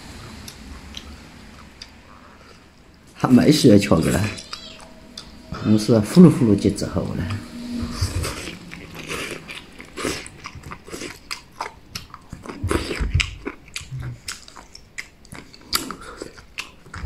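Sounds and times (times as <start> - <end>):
chewing: 0.3 - 2.9, 9.0 - 17.0.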